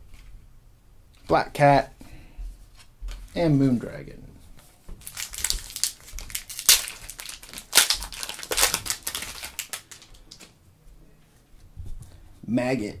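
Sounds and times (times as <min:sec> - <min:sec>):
foil wrapper tearing and crinkling: 0:05.0 - 0:10.5.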